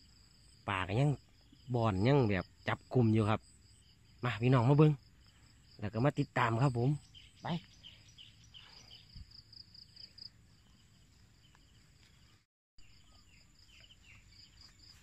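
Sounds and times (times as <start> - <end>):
insects trilling: 0.0 - 15.0
short bird chirps: 7.0 - 10.2.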